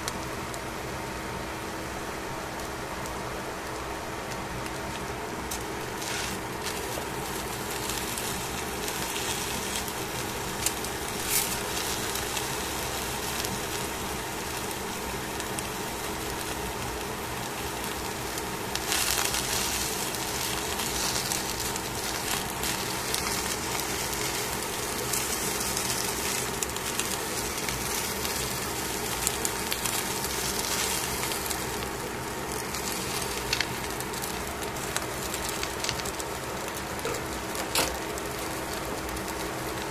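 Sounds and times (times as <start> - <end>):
fish sizzling in a pan: 4.7 - 39.9.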